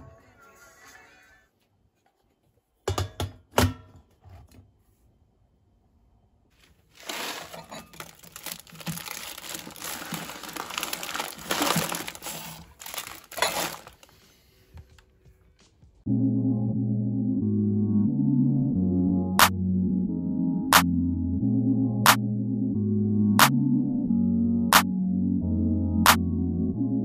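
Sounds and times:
plastic snack packets crinkling: 6.6s - 14.3s.

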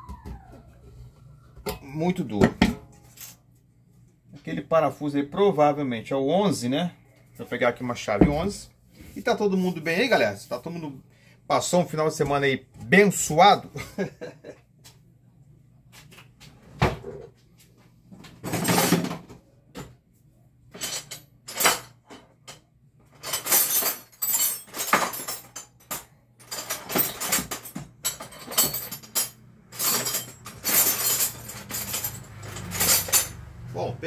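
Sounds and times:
metal hand tools clinking and rattling: 23.2s - 33.4s.

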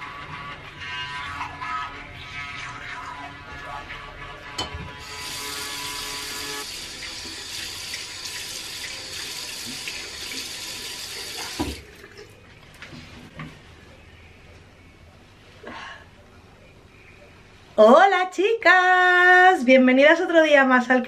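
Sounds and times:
tap running into sink: 9.4s - 11.9s
tap turned off knock: 11.6s - 11.8s.

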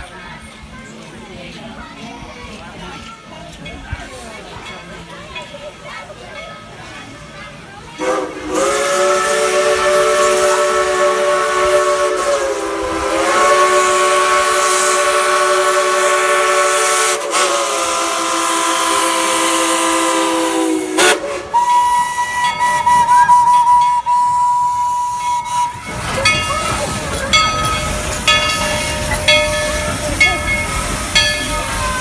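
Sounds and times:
hissing steam: 7.9s - 32.0s
multi-note steam whistle: 8.0s - 26.0s
single-note steam whistle: 8.0s - 26.0s
locomotive clanks: 21.5s - 32.0s.

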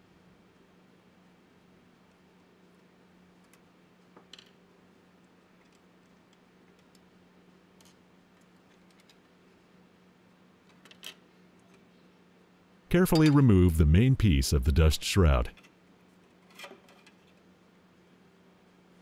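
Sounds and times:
low steady hum: 12.9s - 15.6s.

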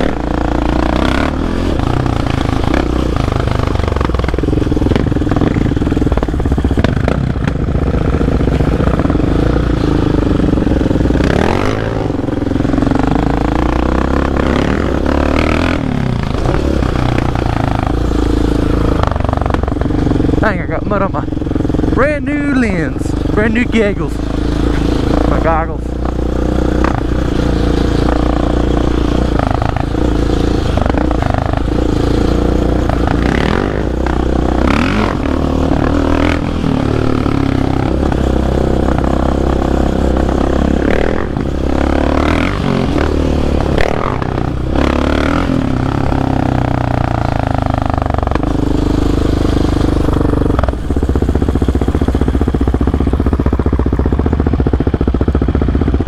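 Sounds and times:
quad engine revving: 0.0s - 56.0s.

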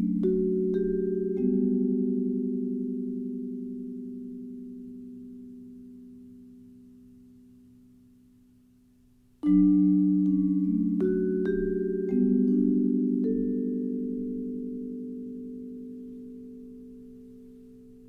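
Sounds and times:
vibraphone with soft mallets: 0.0s - 8.2s, 9.3s - 18.0s.

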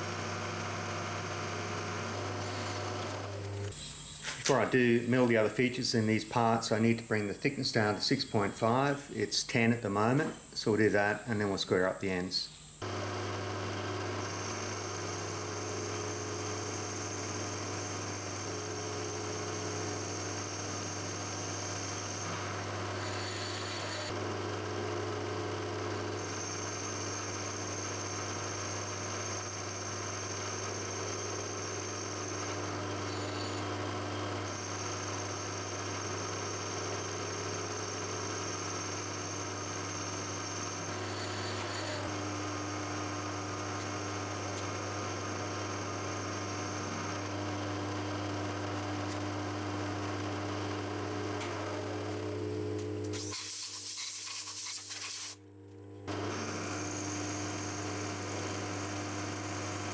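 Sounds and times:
milling machine motor hum: 0.0s - 9.3s, 12.5s - 53.3s, 55.4s - 59.9s
loud hiss: 53.2s - 55.4s
high cutting whine: 56.1s - 59.9s.

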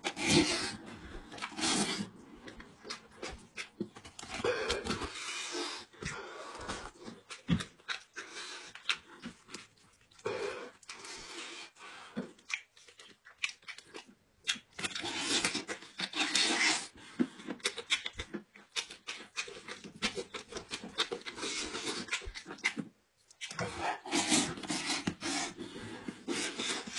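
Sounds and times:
slurping and sucking: 0.0s - 2.4s, 23.4s - 26.9s
wet chewing and smacking: 0.0s - 5.4s, 6.0s - 11.1s, 12.0s - 25.2s.

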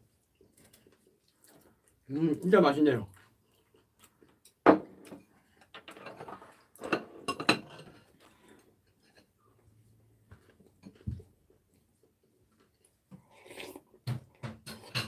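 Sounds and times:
tableware knocking on wooden table: 4.6s - 5.2s.

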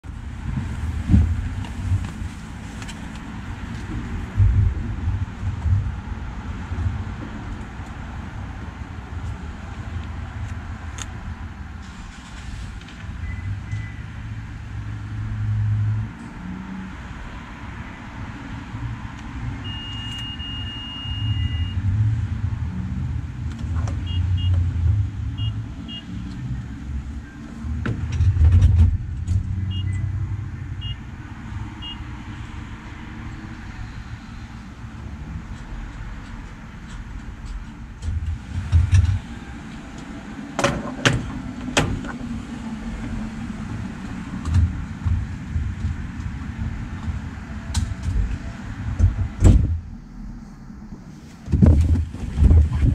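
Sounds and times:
steady low rumble: 0.0s - 13.5s, 41.4s - 52.9s
gas pump beeping: 19.6s - 21.8s, 24.0s - 24.6s, 29.7s - 30.1s, 30.8s - 31.0s.

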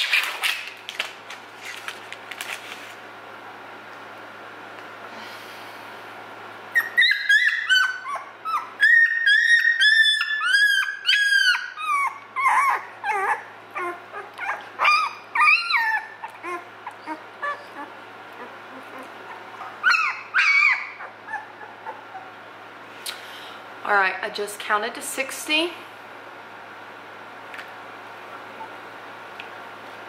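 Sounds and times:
puppy whining and yelping: 6.7s - 22.5s, 28.2s - 29.0s.

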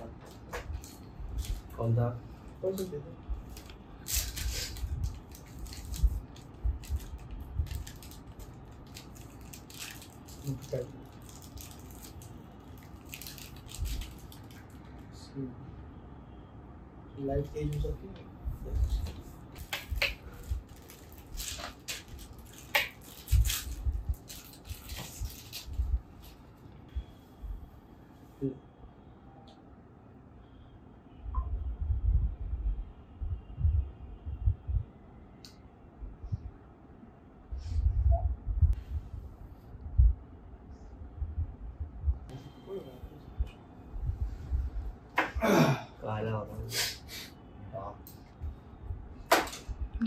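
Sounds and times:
plastic wrapper crinkling: 3.5s - 14.9s, 19.6s - 26.4s
soft low thumps: 37.7s - 40.3s, 40.9s - 42.3s.

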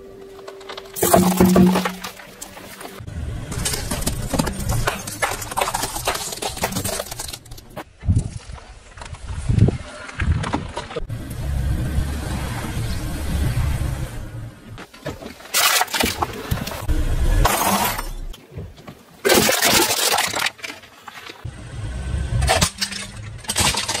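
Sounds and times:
tyre crushing cans: 1.0s - 2.9s, 3.6s - 7.8s, 19.2s - 21.4s, 22.4s - 24.0s.

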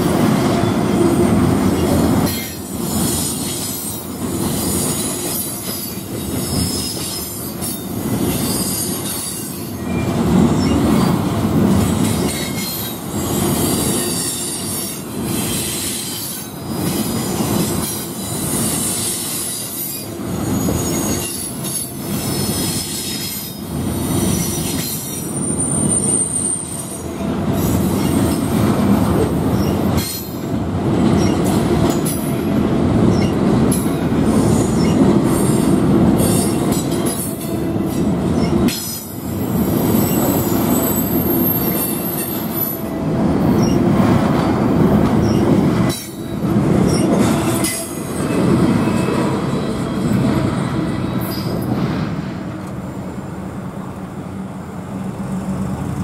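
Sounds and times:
train wheels rumbling on track: 0.0s - 56.0s
high-pitched wheel squeals: 18.5s - 23.6s, 24.3s - 27.0s, 39.7s - 42.8s.

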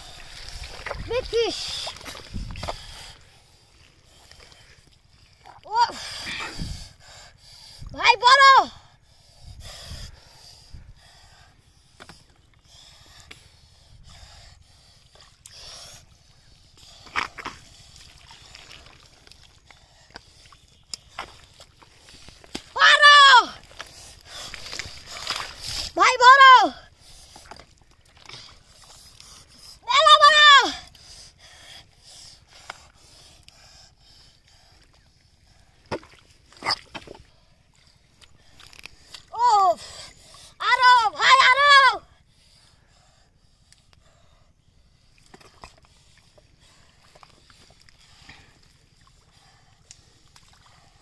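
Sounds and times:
hands squelching in wet mud: 0.0s - 6.7s, 14.7s - 26.0s, 26.8s - 29.8s, 30.8s - 40.6s, 44.8s - 51.0s
water sloshing and splashing: 0.0s - 7.1s, 14.7s - 41.1s, 44.9s - 51.0s.

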